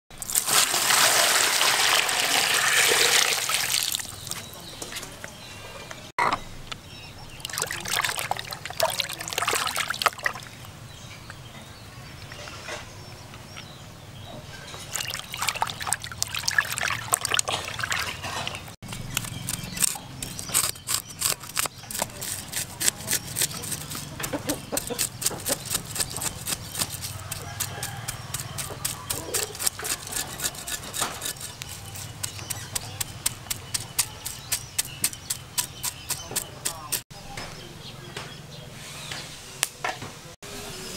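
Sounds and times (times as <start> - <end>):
water pouring and splashing: 0.1 - 4.4, 7.4 - 10.7, 14.8 - 18.8
hands sloshing in water: 7.4 - 10.5, 14.9 - 18.6
cleaver scraping fish scales: 17.5 - 37.0.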